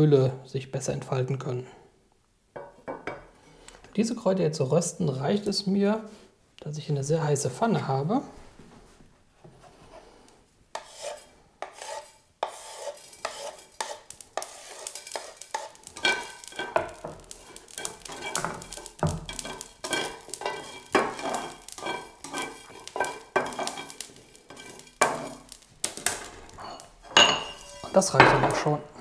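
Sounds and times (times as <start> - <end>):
spatula scraping spices in pan: 9.7 - 28.2
knife sweeping spices into pan: 10.8 - 25.6.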